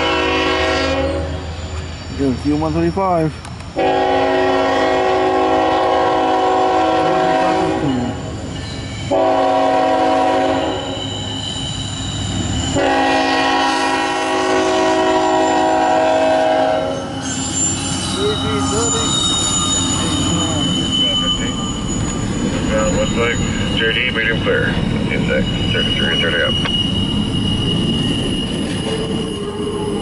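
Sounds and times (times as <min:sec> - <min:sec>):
locomotive air horn blasts: 0:00.0 - 0:01.4, 0:03.8 - 0:08.2, 0:09.1 - 0:11.0, 0:12.8 - 0:17.1
low rumble of train: 0:00.0 - 0:30.0.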